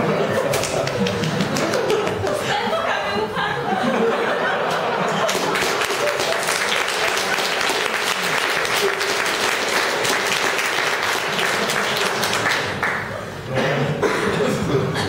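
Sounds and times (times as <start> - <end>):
audience applauding: 0.5 - 2.4, 4.7 - 13.2.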